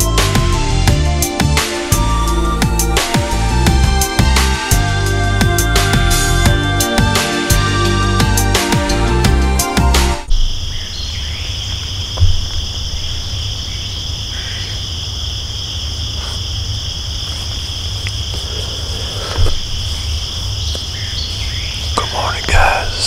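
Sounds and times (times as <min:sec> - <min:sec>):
insects singing: 0:10.2 - 0:23.0
soft thumps: 0:12.1 - 0:12.9.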